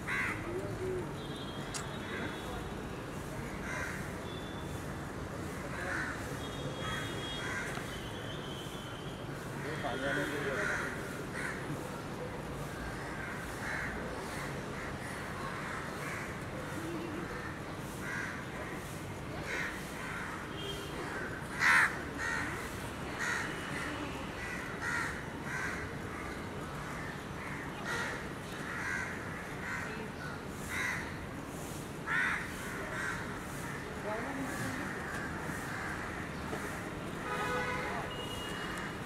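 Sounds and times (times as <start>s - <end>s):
crows cawing: 0.0s - 0.5s, 3.6s - 4.1s, 5.8s - 7.8s, 9.8s - 11.6s, 12.9s - 16.4s, 17.3s - 20.4s, 21.0s - 23.6s, 24.4s - 31.2s, 32.0s - 33.8s, 34.8s - 36.8s.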